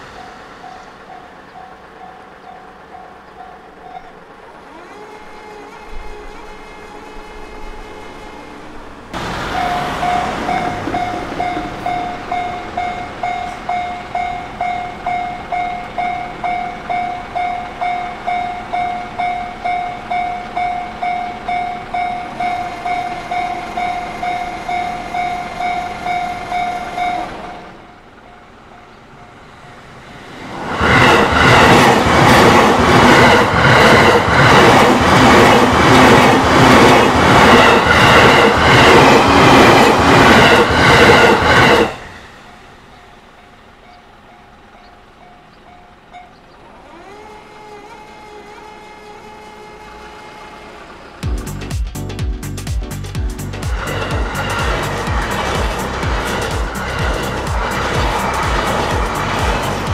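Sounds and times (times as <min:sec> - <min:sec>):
crossing warning bell: 0:00.0 - 0:04.4, 0:09.2 - 0:29.9, 0:33.1 - 0:47.2, 0:53.7 - 0:59.9
train wheel clatter: 0:09.2 - 0:27.7, 0:30.4 - 0:42.6, 0:53.6 - 0:59.9.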